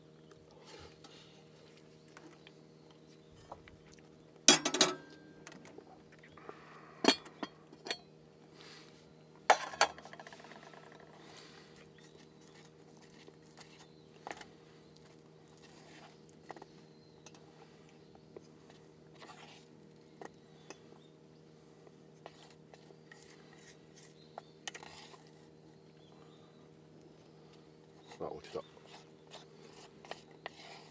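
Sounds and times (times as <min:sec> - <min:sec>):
faint steady hum: 0:00.0 - 0:30.9
dishes and cutlery clinking: 0:04.5 - 0:05.2, 0:09.5 - 0:11.0.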